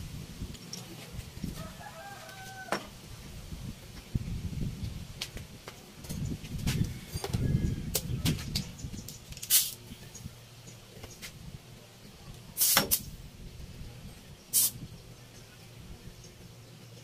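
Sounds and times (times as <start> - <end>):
compressed air blasts: 9.4 - 9.8, 12.6 - 13.2, 14.5 - 14.8.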